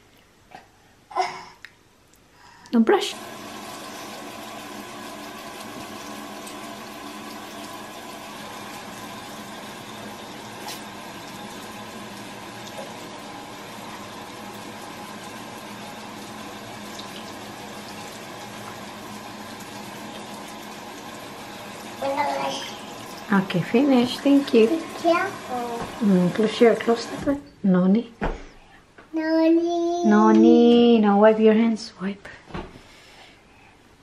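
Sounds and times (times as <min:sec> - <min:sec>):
tap water pouring into basin: 0:03.1 - 0:27.4.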